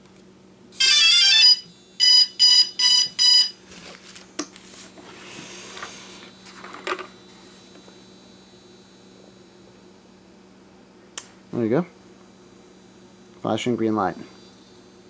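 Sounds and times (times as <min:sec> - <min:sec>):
short electronic beeps: 0:00.8 - 0:03.6.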